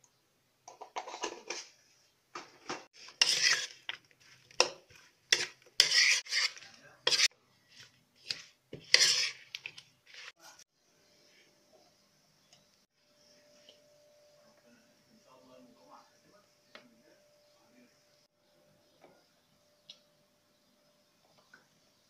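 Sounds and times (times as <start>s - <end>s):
metal spoon scraping baking dish: 0.8s - 1.8s, 2.7s - 10.4s.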